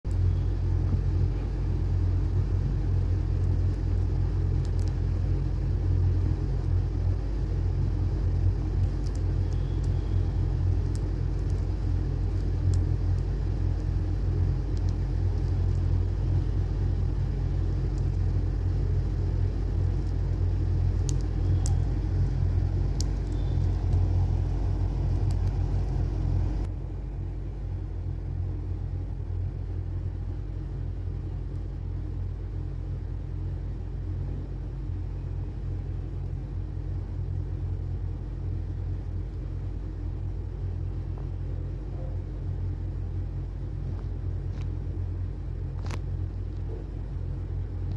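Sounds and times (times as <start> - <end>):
low background rumble: 0.0 - 47.9
faint clicks: 21.0 - 21.9.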